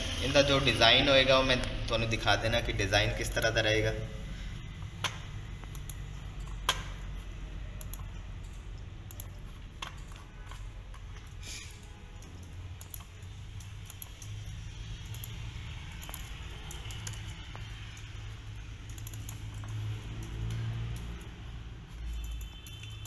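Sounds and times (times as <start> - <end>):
laptop keys clicking: 4.8 - 7.1, 7.8 - 23.0.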